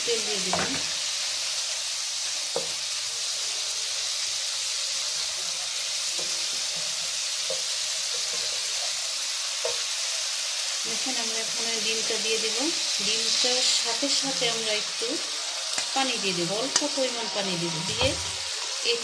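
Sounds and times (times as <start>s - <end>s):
masala sizzling in a frying pan: 0.0s - 19.0s
wooden spoon knocking a pan: 0.5s - 0.9s, 2.5s - 2.8s, 6.2s - 6.8s, 9.6s - 9.9s.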